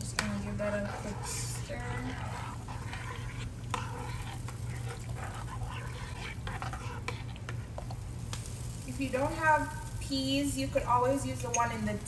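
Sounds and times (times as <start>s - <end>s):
spoon scraping a pot: 0.0s - 8.0s
steady low hum: 0.0s - 12.0s.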